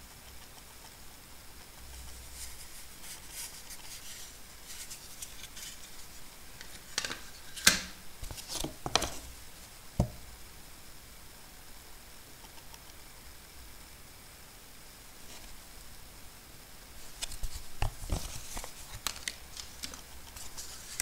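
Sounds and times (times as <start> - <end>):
soft rustling: 1.9 - 7.6
dull thump: 10.0 - 10.2
sharp crinkles and clicks: 17.2 - 21.0.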